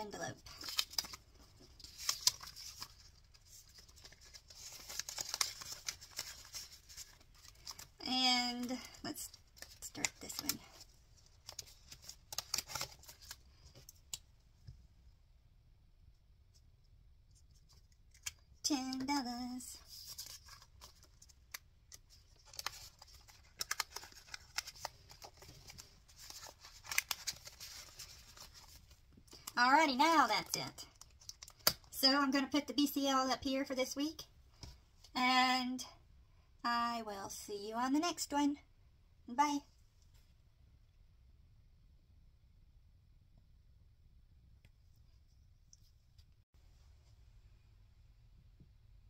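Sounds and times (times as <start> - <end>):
banknotes rustling: 0.4 - 13.8, 19.8 - 29.6
plastic pouches crinkling: 0.5 - 8.0, 11.4 - 14.0, 20.0 - 29.6.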